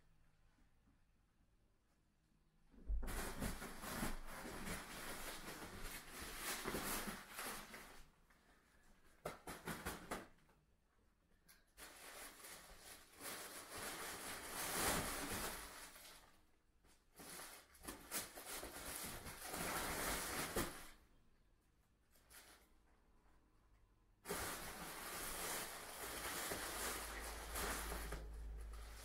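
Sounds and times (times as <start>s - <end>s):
fabric tunnel rustling and crackling: 3.0s - 8.1s, 11.8s - 16.4s, 24.2s - 29.0s.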